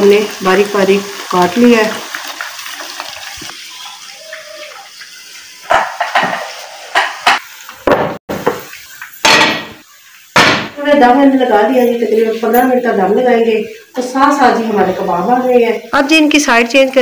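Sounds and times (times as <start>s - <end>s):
metal cookware clattering: 5.6s - 9.8s.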